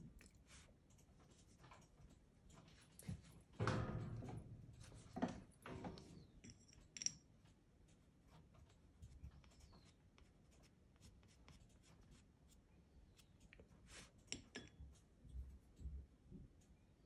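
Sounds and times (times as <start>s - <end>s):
knocks: 3.6s - 5.5s
pastel stick scratching on paper: 9.1s - 14.2s.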